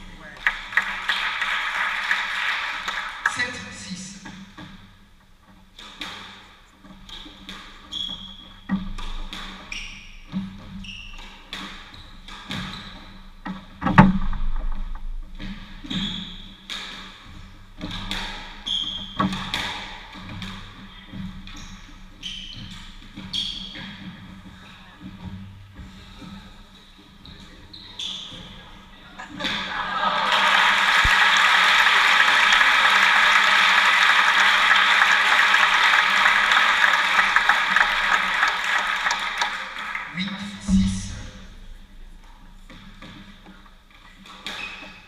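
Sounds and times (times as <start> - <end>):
shoes squeaking on wooden floor: 4.2 - 13.8, 15.3 - 29.2, 42.2 - 45.0
squash ball hitting rackets and walls: 5.5 - 24.3, 41.4 - 45.0.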